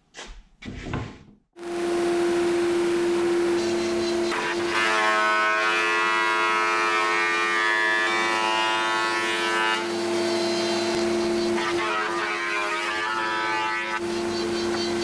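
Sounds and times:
planer cutting wood whine: 1.6 - 15.0
motor humming: 9.8 - 11.7.

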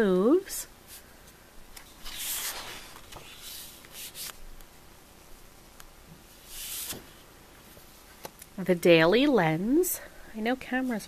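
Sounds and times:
paper sliding and rustling: 1.8 - 4.4, 6.4 - 7.2.

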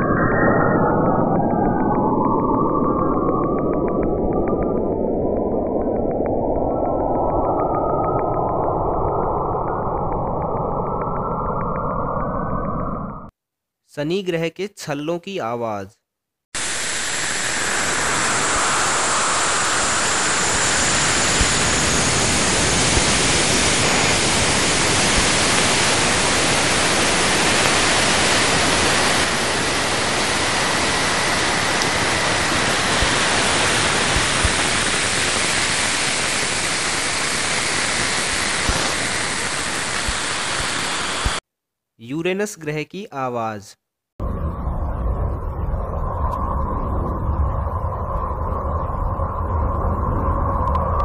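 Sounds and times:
rushing static hiss: 16.6 - 41.4.

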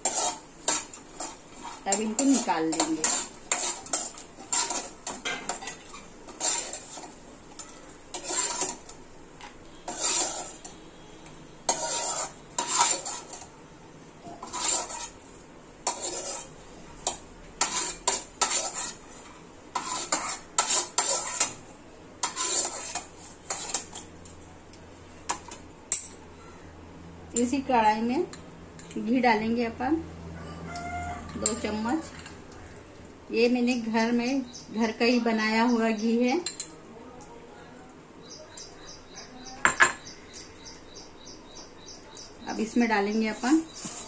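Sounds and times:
ladle scraping a pan: 0.0 - 13.5, 14.2 - 24.1, 43.2 - 44.0.

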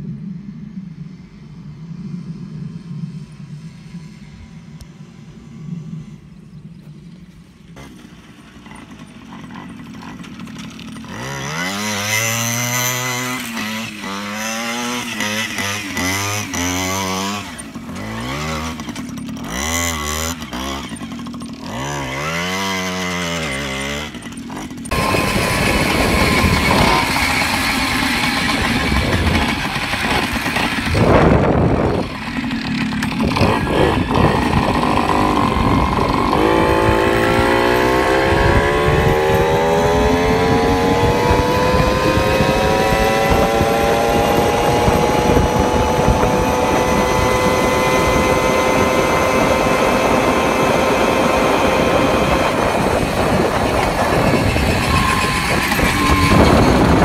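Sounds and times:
moped engine revving: 0.0 - 57.0
rushing wind noise: 24.8 - 57.0.

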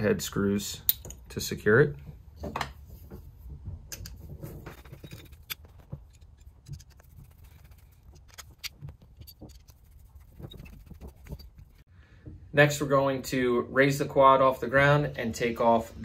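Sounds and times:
small metal parts clicking and scraping: 3.9 - 11.9.

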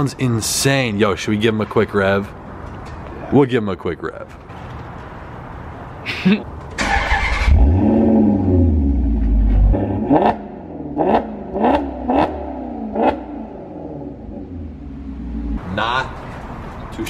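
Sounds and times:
car exhaust revving: 7.5 - 15.7.

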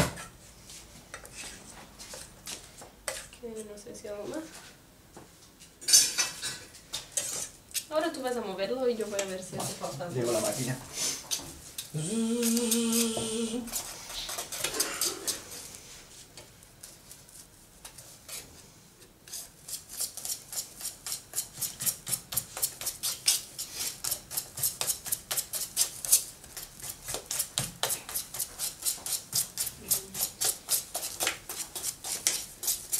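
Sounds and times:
batter beaten in metal pot: 19.3 - 32.9.

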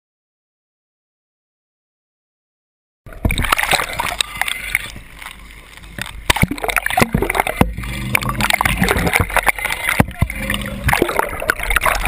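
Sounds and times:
low steady hum: 3.1 - 12.0
water gurgling and splashing: 3.1 - 12.0.

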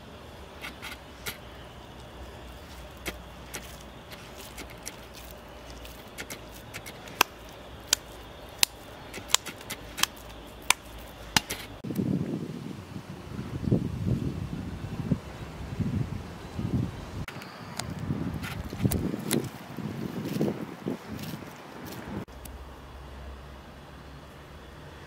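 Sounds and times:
wind rumbling on microphone: 0.0 - 22.3
hands slapping ground meat: 2.8 - 11.7.

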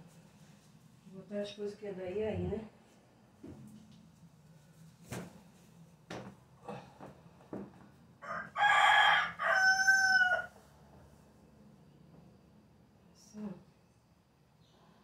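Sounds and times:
rooster crowing: 8.2 - 10.7.

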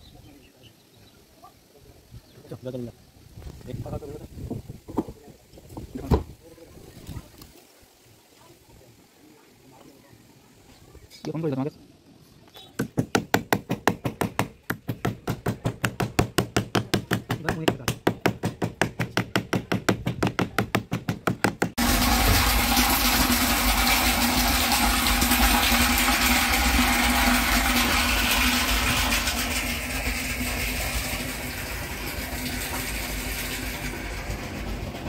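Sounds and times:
water gushing into tank: 21.8 - 35.0.

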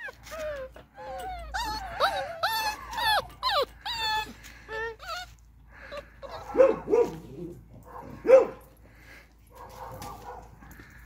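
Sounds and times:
puppies whining and yipping: 0.0 - 7.7
puppy barking: 6.2 - 8.6, 9.5 - 10.6.

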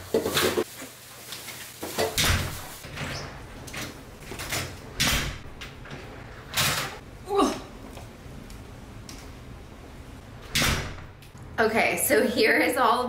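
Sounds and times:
door opening and shutting: 2.0 - 7.0, 10.3 - 11.4.

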